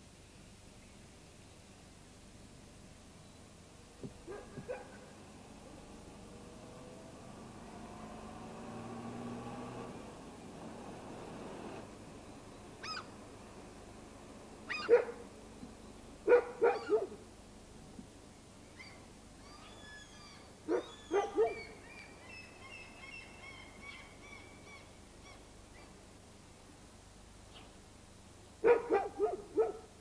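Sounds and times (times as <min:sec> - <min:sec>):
dog barking: 0:04.3 - 0:05.1, 0:14.7 - 0:15.2, 0:16.3 - 0:17.2, 0:20.7 - 0:21.7, 0:28.6 - 0:29.9
birds chirping: 0:18.6 - 0:26.0.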